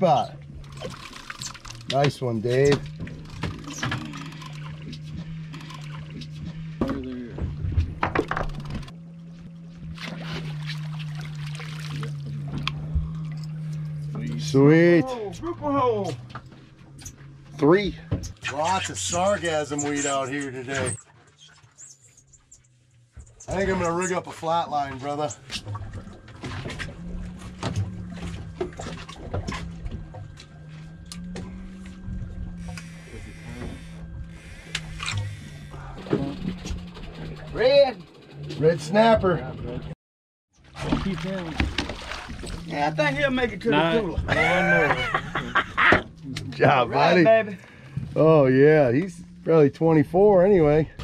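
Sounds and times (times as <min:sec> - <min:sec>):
water sloshing: 0:00.0 - 0:37.5, 0:40.6 - 0:51.0
boat engine hum: 0:00.0 - 0:51.0
splashing running water: 0:10.0 - 0:12.4, 0:40.8 - 0:42.8
hissing water: 0:32.6 - 0:36.0.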